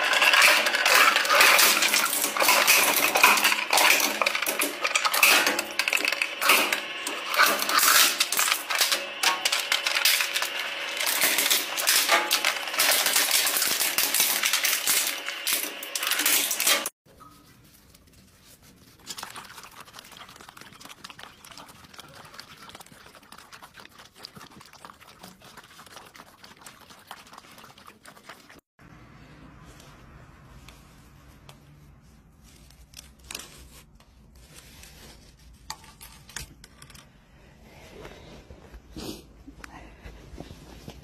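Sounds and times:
shredder crushing plastic: 0:00.0 - 0:17.0
puppies chewing and clicking: 0:18.8 - 0:28.6.

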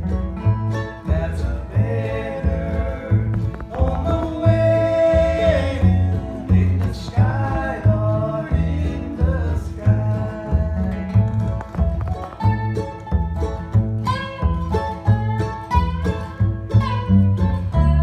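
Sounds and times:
acoustic guitar: 0:00.0 - 0:18.0
bass alternating two notes: 0:00.0 - 0:18.0
resonator guitar sliding notes: 0:00.0 - 0:18.0
person singing: 0:01.0 - 0:11.6.

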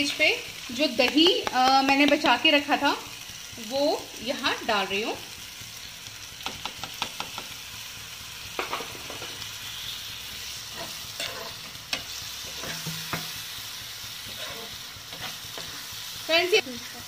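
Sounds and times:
frying sizzle: 0:00.0 - 0:17.0
spoon clicking against pan: 0:06.4 - 0:07.5
spoon scraping frying pan: 0:10.6 - 0:13.4, 0:14.2 - 0:16.0.

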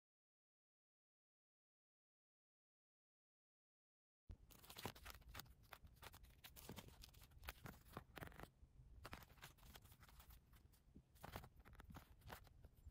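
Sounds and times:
plastic pouches crinkling: 0:04.4 - 0:12.9.

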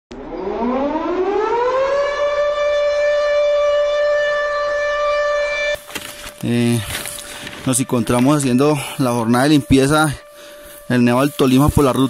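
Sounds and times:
siren winding up: 0:00.1 - 0:05.8.

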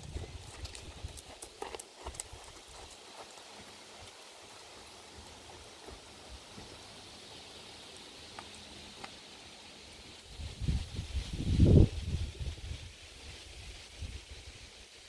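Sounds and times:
horse hooves trotting on sand: 0:00.0 - 0:09.4
faint outdoor hiss: 0:00.0 - 0:15.0.

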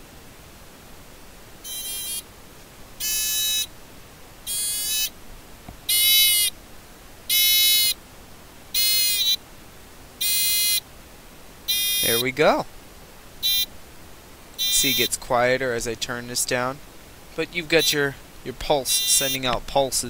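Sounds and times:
buzzer pulsing: 0:01.6 - 0:02.2, 0:03.0 - 0:03.7, 0:04.5 - 0:05.1, 0:05.9 - 0:06.5, 0:07.3 - 0:08.0, 0:08.8 - 0:09.4, 0:10.2 - 0:10.8, 0:11.7 - 0:12.3, 0:13.4 - 0:13.7, 0:14.6 - 0:15.1, 0:17.8 - 0:18.0, 0:18.9 - 0:19.6.

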